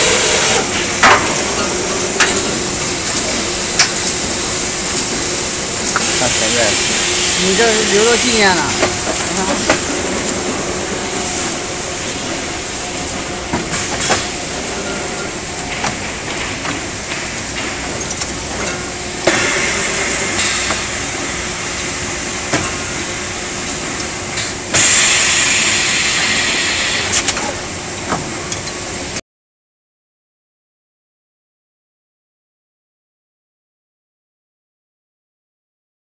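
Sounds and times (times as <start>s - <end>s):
loud air hiss: 0.0s - 14.6s, 19.1s - 22.5s, 24.4s - 27.3s
factory machine humming: 0.0s - 29.2s.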